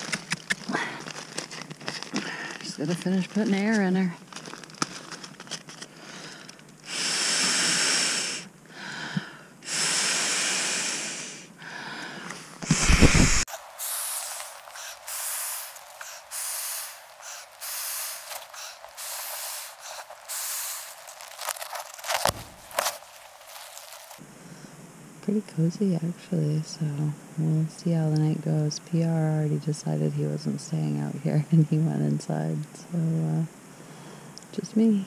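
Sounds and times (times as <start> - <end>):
rustling: 0.0 - 6.8, 12.2 - 24.2
air puffs into valve: 12.6 - 21.0.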